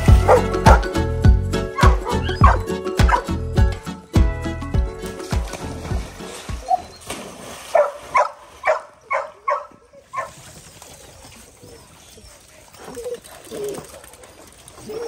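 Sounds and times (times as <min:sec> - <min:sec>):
dog barking: 0:00.2 - 0:00.9, 0:01.8 - 0:03.3, 0:07.7 - 0:10.3.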